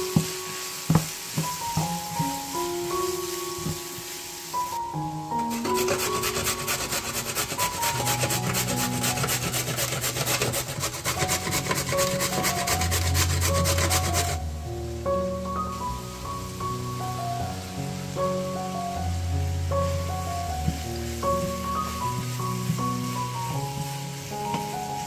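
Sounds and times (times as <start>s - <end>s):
soft background music: 0.0s - 25.0s
carrot rasping on a grater: 5.6s - 14.4s.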